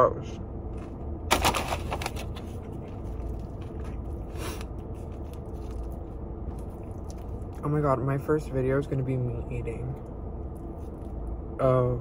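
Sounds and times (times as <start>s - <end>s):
steady low hum: 0.0s - 12.0s
food rustling and scraping in bowl: 0.7s - 7.6s.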